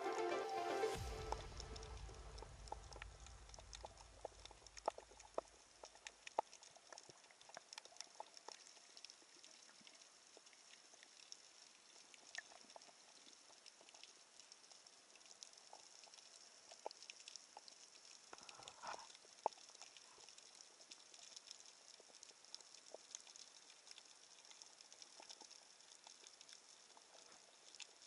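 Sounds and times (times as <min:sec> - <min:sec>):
soft hiss: 0:00.0 - 0:28.0
low rumble: 0:01.0 - 0:05.3
underwater clicks and crackles: 0:01.4 - 0:28.0.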